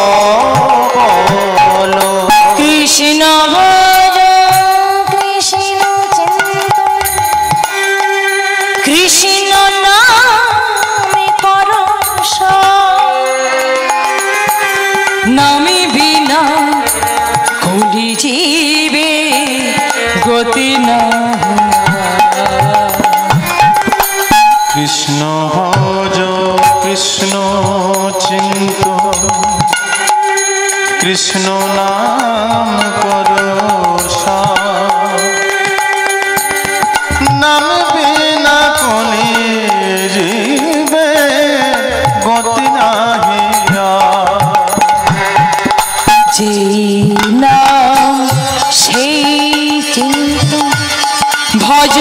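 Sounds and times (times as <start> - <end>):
woman singing: 0.0 - 24.2, 45.6 - 52.0
instrumental accompaniment: 0.0 - 52.0.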